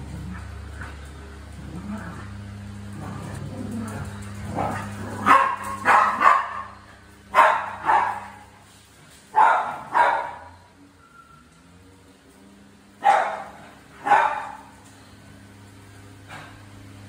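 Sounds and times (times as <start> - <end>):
dog barking: 5.2 - 8.5, 9.3 - 10.6, 13.0 - 14.7.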